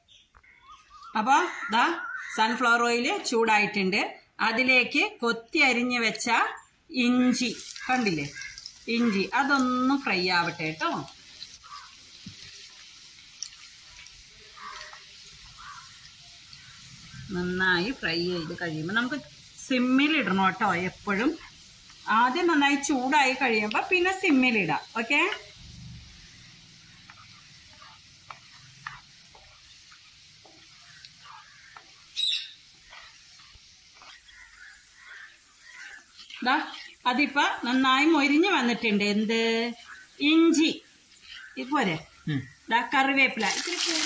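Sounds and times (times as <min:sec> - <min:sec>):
ginger sizzling in hot oil: 0:07.0 - 0:44.0
wooden spatula stirring: 0:10.8 - 0:16.9, 0:26.2 - 0:37.0.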